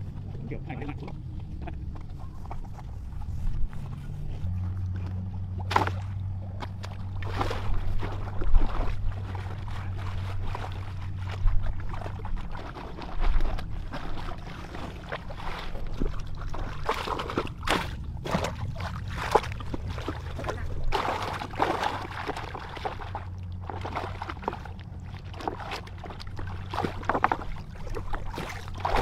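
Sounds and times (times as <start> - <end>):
water sloshing and splashing: 0.0 - 29.0.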